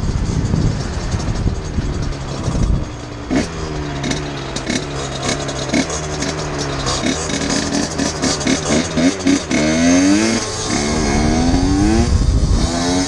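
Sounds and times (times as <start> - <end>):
wind rush on microphone: 0.0 - 3.0, 10.7 - 13.0
dirt bike engine idling: 0.0 - 13.0.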